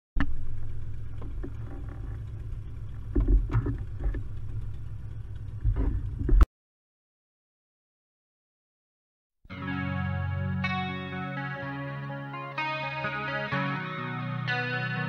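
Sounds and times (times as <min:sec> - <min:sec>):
glider cockpit rumble: 0:00.2 - 0:06.5.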